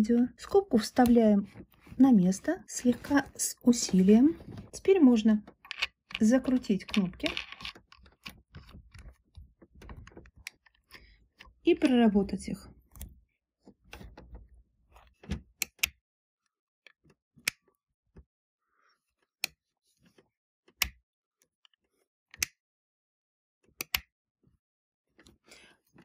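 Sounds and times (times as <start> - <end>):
knitting machine carriage handling: 0.9 - 10.9.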